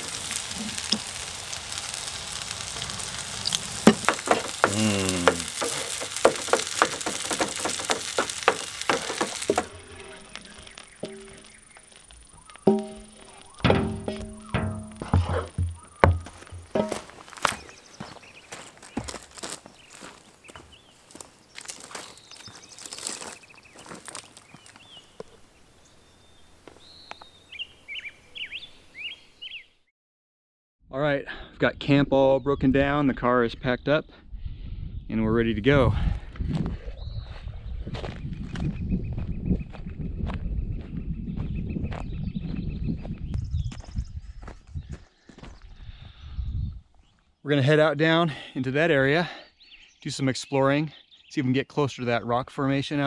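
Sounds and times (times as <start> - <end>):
food sizzling in a frying pan: 0.0 - 11.7
faint outdoor ambience: 0.0 - 29.7
songbird singing: 0.0 - 29.9, 36.9 - 53.0
wooden spatula scraping a pan: 3.6 - 11.4.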